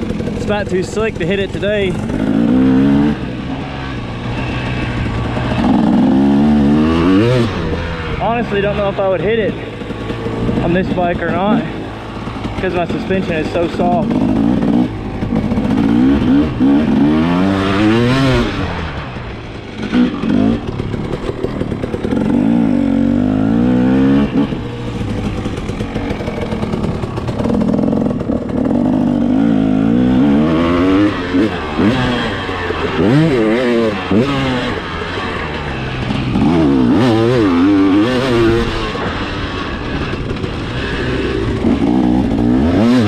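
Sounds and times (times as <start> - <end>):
dirt bike engine revving: 0.0 - 43.0.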